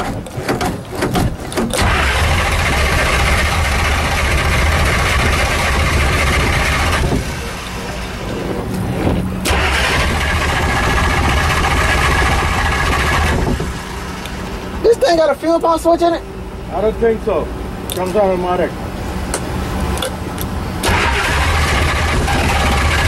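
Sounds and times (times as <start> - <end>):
car engine cranking on starter: 0.1 - 14.7, 20.8 - 23.0.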